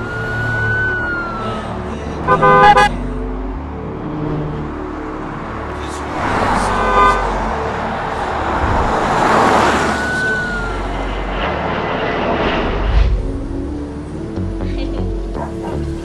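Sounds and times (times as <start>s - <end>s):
city road traffic: 0.0s - 16.0s
car horn: 2.2s - 3.0s, 6.2s - 8.0s.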